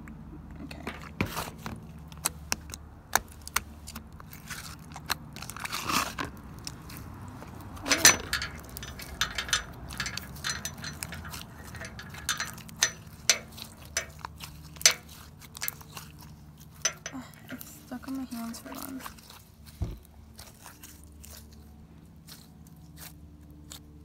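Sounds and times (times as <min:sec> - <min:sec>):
slime squelch: 0:13.6 - 0:23.8.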